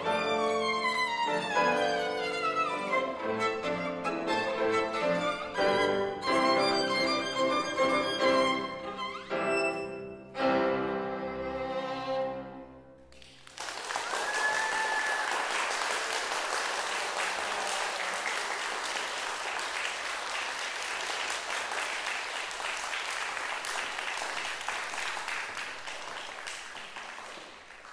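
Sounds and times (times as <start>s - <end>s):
audience applauding: 13.1s - 27.9s.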